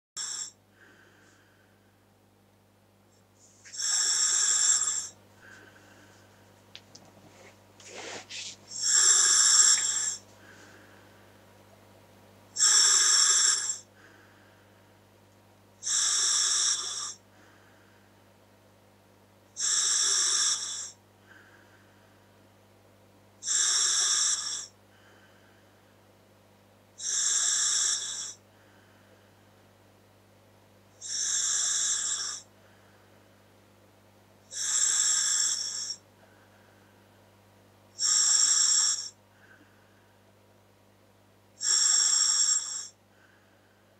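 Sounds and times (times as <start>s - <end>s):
faint steady hum: 0.2s - 43.9s
hissing breaths through regulator: 7.8s - 10.8s.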